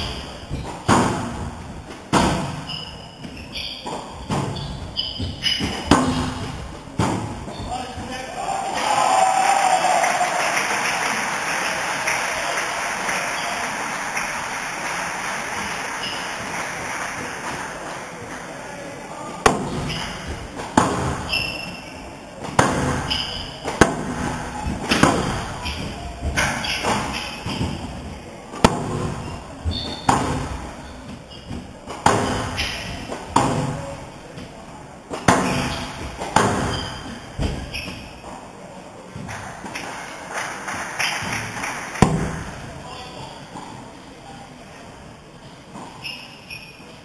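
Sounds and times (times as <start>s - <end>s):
shoes squeaking on wooden floor: 0.0s - 8.4s, 15.6s - 16.6s, 19.7s - 34.4s, 35.4s - 38.4s, 45.4s - 47.0s
squash ball cracking off rackets: 41.0s - 42.6s.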